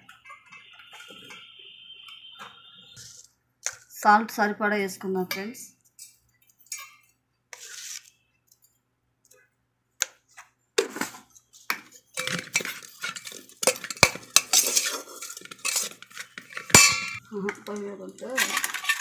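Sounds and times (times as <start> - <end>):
ladle clinking and scraping in pot: 5.3 - 8.1, 11.9 - 17.2, 18.4 - 19.0.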